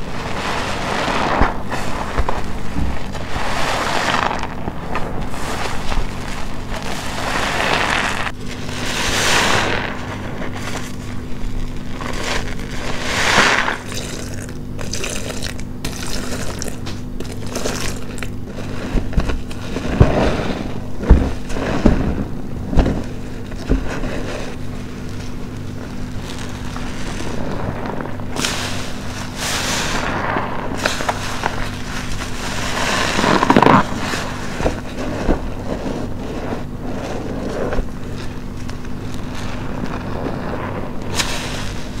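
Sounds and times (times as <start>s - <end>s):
soapy sponge squeezed: 0.0s - 25.4s.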